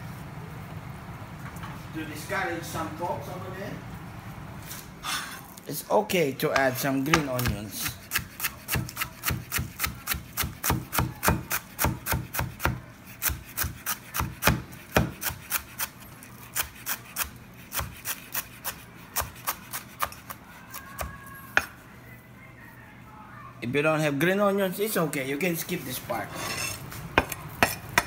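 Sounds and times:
knife chopping on plastic board: 6.5 - 15.8.

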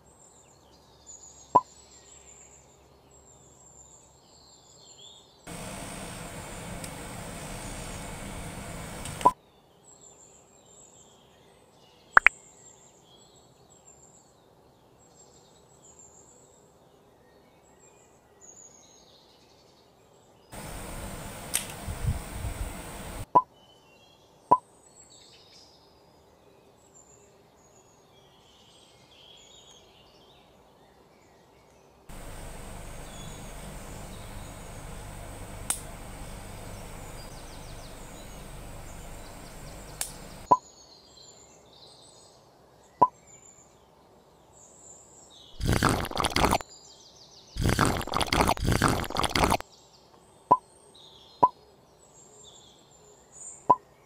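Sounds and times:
bird chirps: 32.1 - 40.7.

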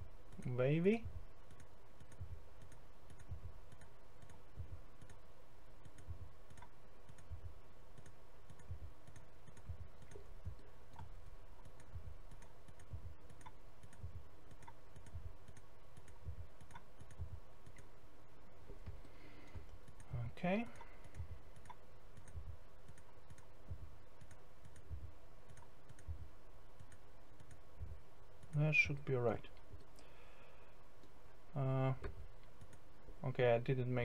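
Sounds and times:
faint steady hum: 0.0 - 34.0
computer mouse clicking: 1.4 - 5.2, 5.8 - 17.9, 18.8 - 20.1, 20.7 - 23.5, 24.2 - 26.2, 26.8 - 27.6, 32.0 - 32.8.

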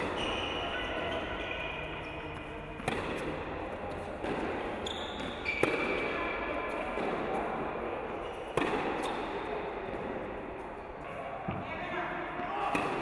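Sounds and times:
tennis ball hit by racket: 2.8 - 7.7, 8.5 - 10.1, 12.7 - 13.0.

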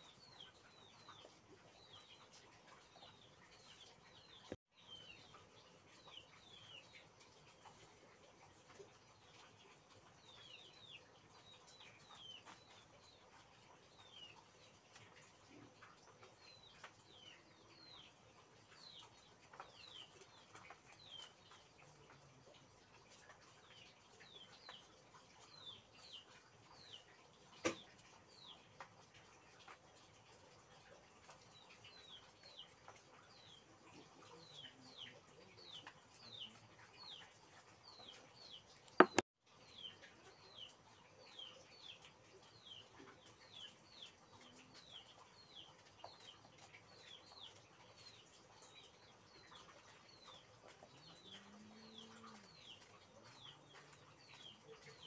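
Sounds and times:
bird chirping: 31.2 - 55.0.

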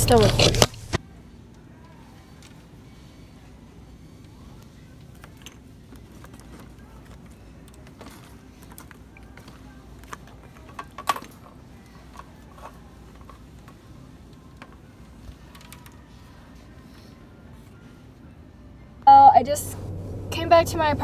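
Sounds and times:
steady low hum: 0.0 - 9.9, 16.3 - 21.0.

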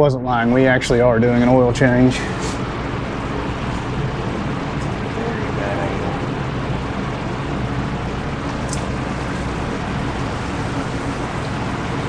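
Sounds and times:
low hum: 0.0 - 12.0
small high click: 8.7 - 8.9.

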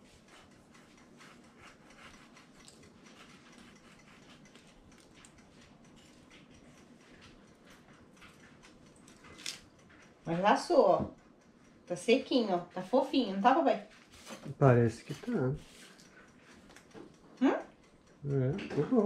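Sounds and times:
spatula scraping cake crust: 0.0 - 6.4.

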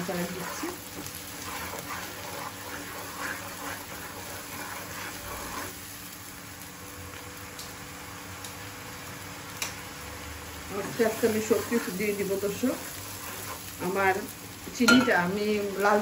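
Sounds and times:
wooden spatula scraping wok: 0.0 - 5.9, 10.7 - 14.3
oil frying and sizzling: 0.0 - 16.0.

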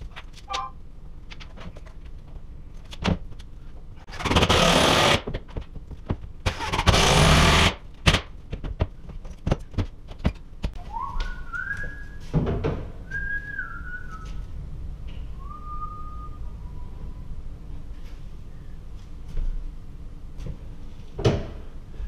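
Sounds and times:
power drill driving screw: 4.2 - 5.3, 6.5 - 7.8
man whistling: 10.8 - 12.2, 13.1 - 14.4, 15.4 - 17.0.

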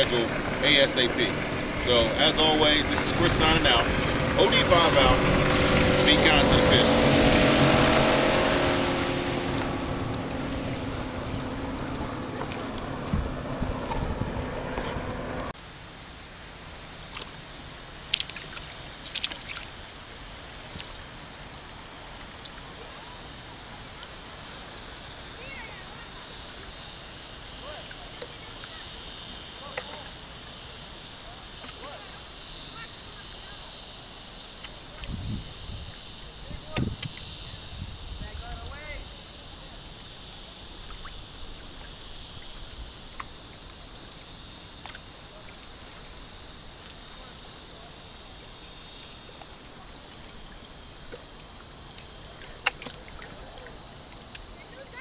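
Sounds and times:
wind rumble: 0.0 - 15.6, 35.0 - 39.2
constant high hiss: 0.0 - 55.0
water at the water's edge: 0.0 - 55.0
wind: 0.0 - 55.0
lapping water: 49.2 - 55.0.

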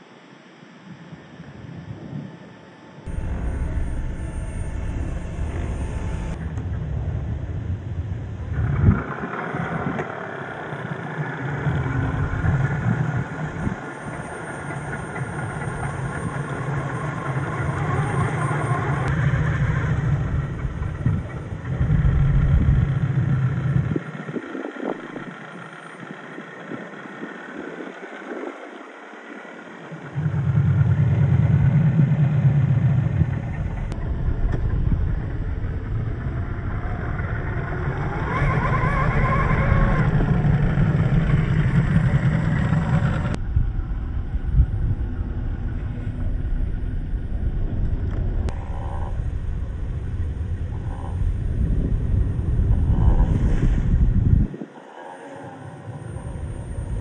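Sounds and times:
toy truck electric motors whining: 9.6 - 20.2, 36.4 - 43.4.

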